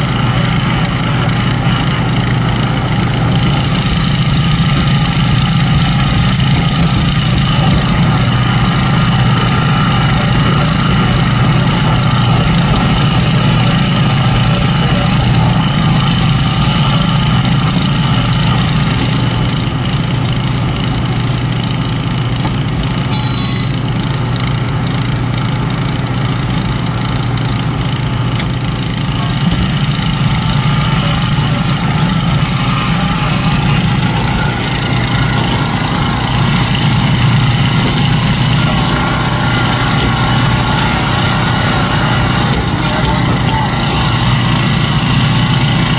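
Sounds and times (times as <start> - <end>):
small gasoline engine running: 0.0 - 45.9.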